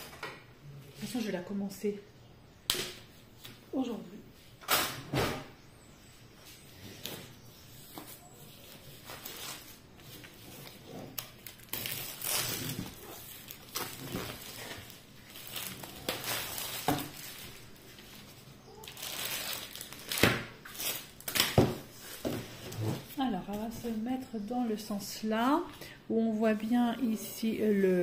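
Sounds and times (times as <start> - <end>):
plastic wrap crinkling and tearing: 8.4 - 23.1.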